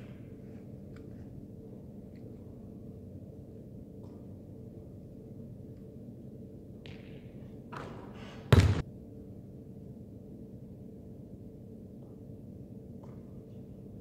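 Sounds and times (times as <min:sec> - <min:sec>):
steady low hum: 0:00.0 - 0:14.0
basketball thudding on hard surface: 0:08.5 - 0:08.8.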